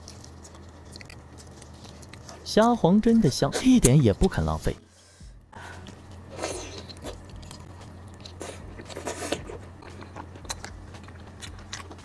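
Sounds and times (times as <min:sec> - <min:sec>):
shrimp being chewed: 0:00.0 - 0:02.5, 0:05.8 - 0:12.0
low steady hum: 0:00.0 - 0:12.0.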